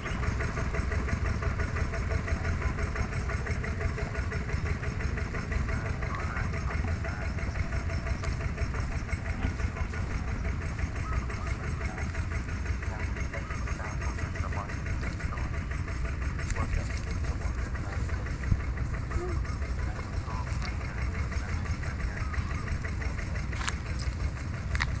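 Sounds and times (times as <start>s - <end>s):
engine idling: 0.0s - 25.0s.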